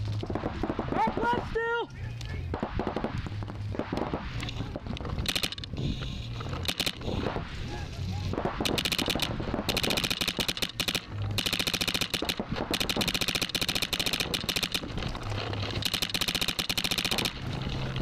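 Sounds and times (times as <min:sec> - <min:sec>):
paintball marker rapid firing: 0:00.2 - 0:01.5, 0:02.4 - 0:05.8, 0:06.6 - 0:07.3, 0:08.4 - 0:15.0, 0:15.7 - 0:17.4.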